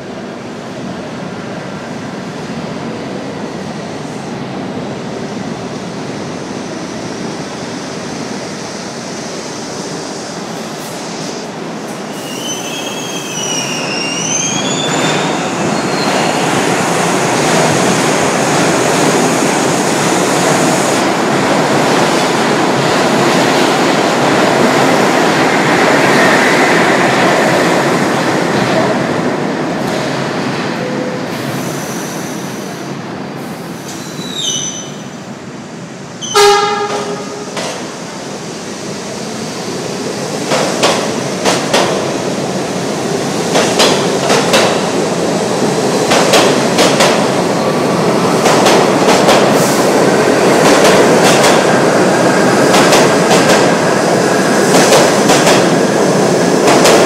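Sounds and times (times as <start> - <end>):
train wheels squealing: 12.0 - 16.5, 33.9 - 35.1
train wheels rumbling on rails: 36.1 - 57.0.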